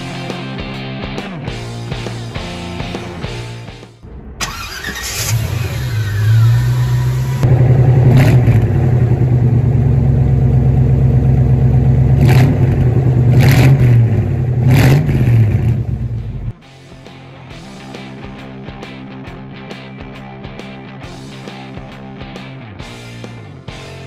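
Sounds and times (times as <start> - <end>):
car engine starting and idling: 4.2 - 16.6.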